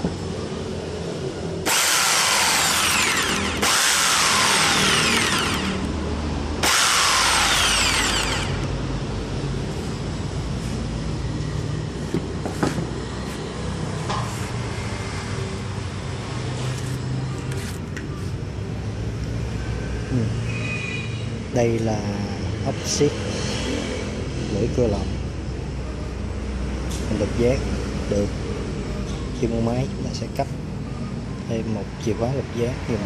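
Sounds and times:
jigsaw motor running: 1.6s - 6.0s, 6.6s - 8.7s.

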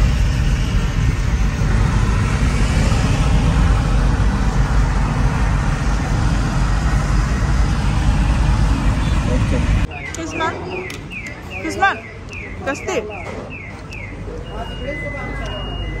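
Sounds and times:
air and tyre hiss: 0.0s - 9.9s
car engine and tyre rumble: 0.0s - 9.9s.

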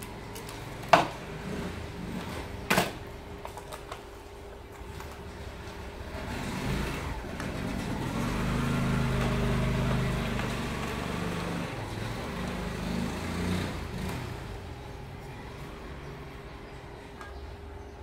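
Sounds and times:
vehicle engine passing by: 0.0s - 2.6s, 6.0s - 17.0s.

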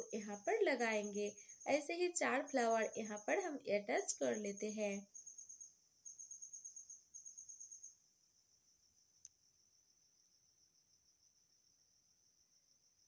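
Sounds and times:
insect trilling: 0.0s - 8.0s.

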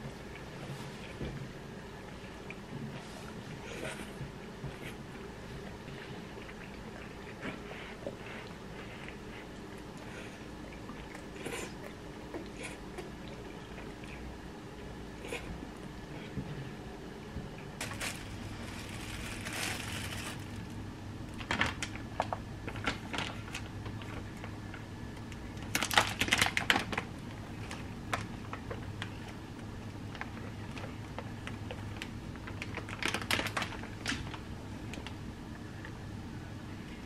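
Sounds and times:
low steady hum: 0.0s - 37.0s
plastic bag rustling and crinkling: 17.8s - 24.2s, 25.6s - 29.3s, 31.9s - 34.4s.

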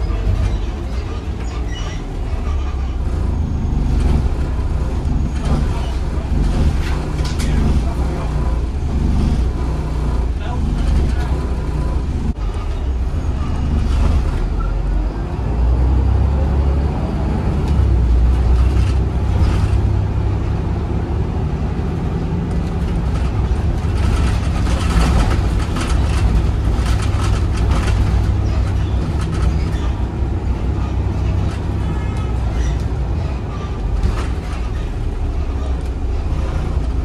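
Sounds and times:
bus diesel engine running: 0.0s - 37.0s
rattles and knocks: 22.6s - 30.1s.

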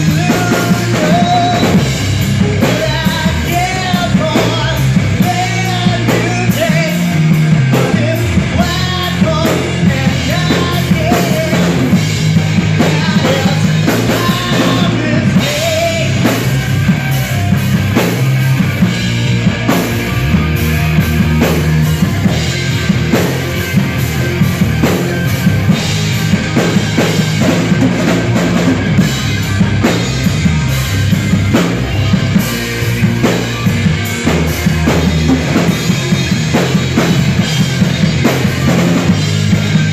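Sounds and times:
person singing: 0.0s - 18.9s
drum kit: 0.0s - 39.9s
electric bass: 0.0s - 39.9s
electric guitars: 0.0s - 39.9s.

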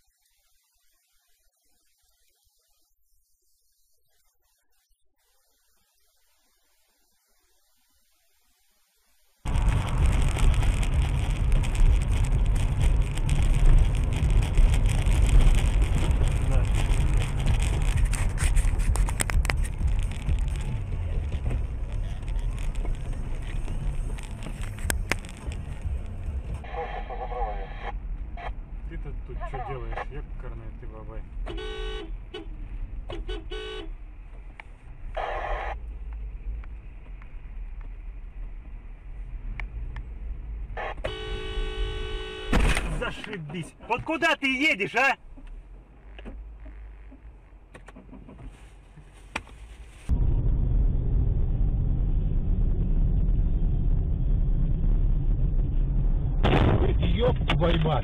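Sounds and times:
car road and engine rumble: 9.4s - 58.0s
car horns honking: 31.4s - 34.0s, 40.8s - 43.1s.

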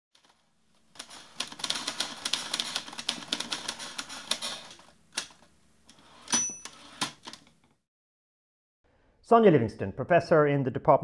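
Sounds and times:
typewriter keys striking: 1.0s - 5.4s.

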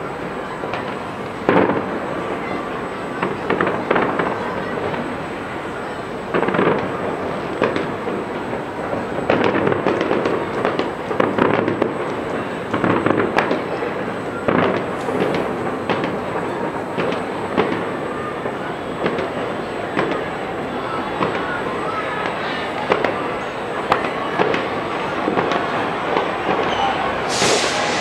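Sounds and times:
fireworks rumbling and crackling: 0.0s - 28.0s
loud firework reports: 0.0s - 28.0s.

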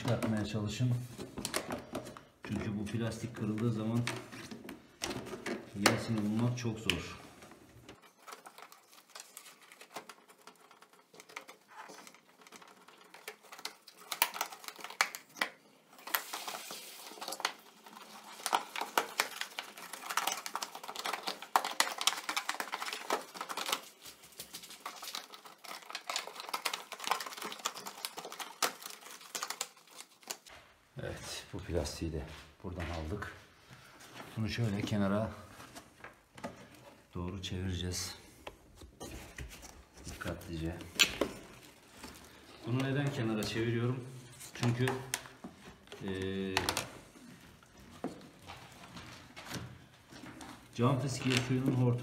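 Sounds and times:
plastic rubbing: 0.0s - 32.3s, 33.0s - 52.0s
plastic panel clicking and crackling: 7.8s - 15.6s.

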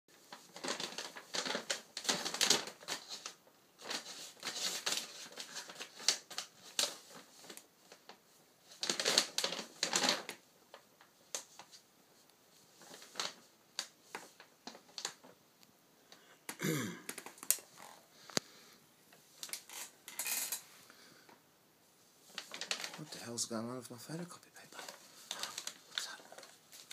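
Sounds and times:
kitten scratching in paper: 0.2s - 7.6s.

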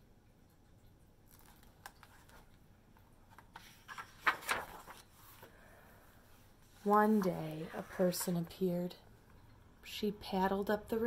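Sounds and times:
paper pages rustling: 1.3s - 2.6s, 3.2s - 5.5s.

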